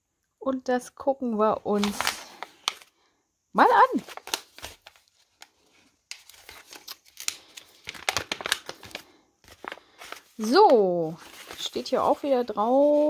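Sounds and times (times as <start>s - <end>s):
paper pouch tearing and rustling: 1.7s - 2.9s, 3.8s - 5.4s, 6.1s - 13.0s.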